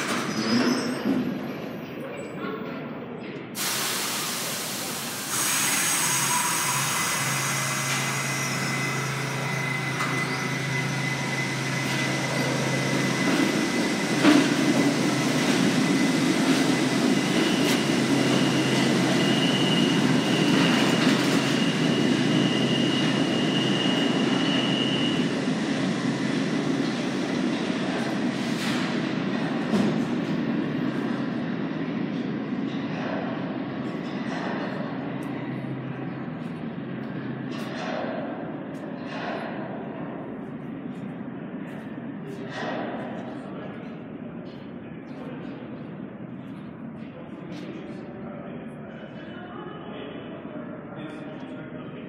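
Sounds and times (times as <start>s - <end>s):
high wheel squeal: 0.1s - 1.9s, 5.4s - 25.5s
loud hiss of air: 3.6s - 8.9s
train cars rumbling: 4.0s - 47.9s.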